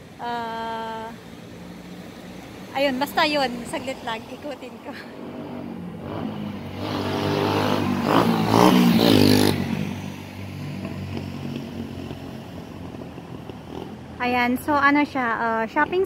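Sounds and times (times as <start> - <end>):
vehicle driving past: 5.0 - 14.2.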